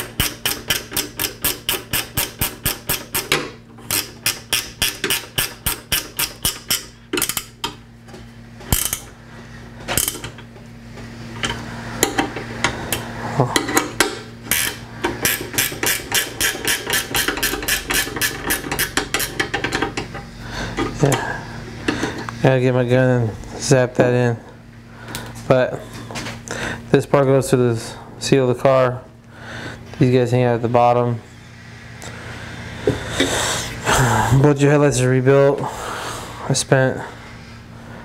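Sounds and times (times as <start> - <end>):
ratchet wrench clicking: 0.0 - 7.6, 8.7 - 9.1, 13.6 - 20.0.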